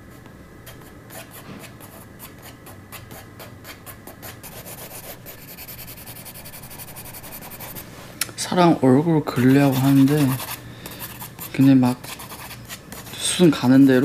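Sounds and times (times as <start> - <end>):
pencil scratching on paper: 0.7 - 7.9, 9.4 - 14.0.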